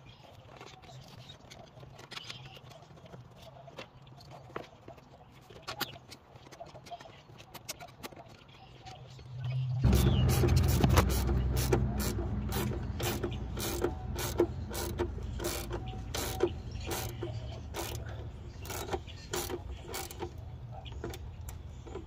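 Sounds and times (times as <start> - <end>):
hand ratchet clicking: 10.3 - 20.4.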